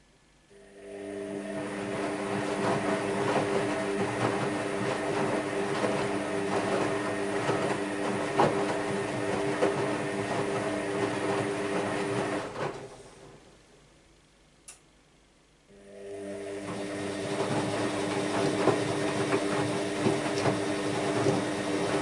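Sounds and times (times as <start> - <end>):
washing machine motor hum: 0.5 - 13.7, 15.7 - 22.0
wet laundry tumbling: 1.8 - 13.4, 16.7 - 22.0.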